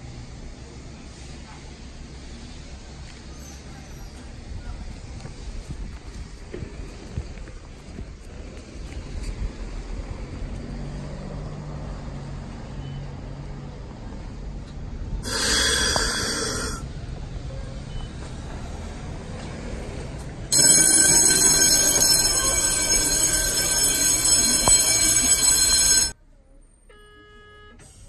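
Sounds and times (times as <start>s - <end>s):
low hum of tram: 0.0s - 28.0s
tram bell ringing: 15.2s - 16.8s, 20.5s - 26.2s.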